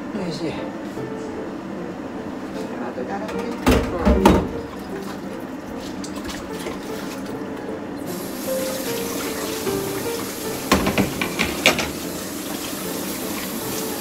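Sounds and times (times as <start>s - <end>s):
tap running into sink: 8.6s - 14.0s.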